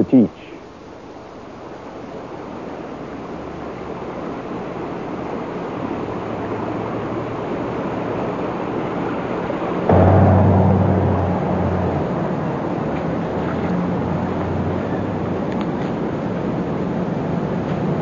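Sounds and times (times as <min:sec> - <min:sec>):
steady rushing noise: 0:09.9 - 0:15.5
faint low hum: 0:09.9 - 0:15.7.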